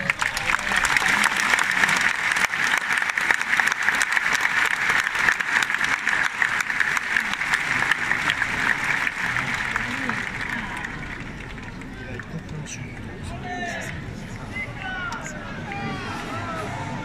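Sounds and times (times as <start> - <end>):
large crowd applauding: 0.0 - 13.9.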